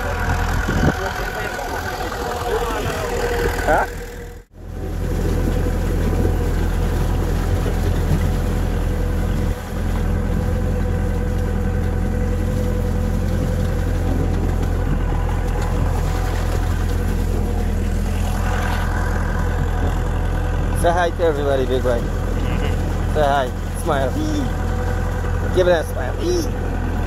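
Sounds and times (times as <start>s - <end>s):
vehicle engine droning: 0.0s - 27.0s.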